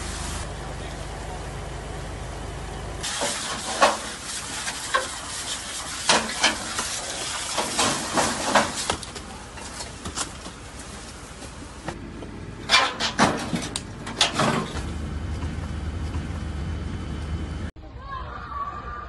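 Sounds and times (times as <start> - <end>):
fire crackling and hissing: 0.0 - 1.3, 2.9 - 12.0
low hum: 7.3 - 17.7.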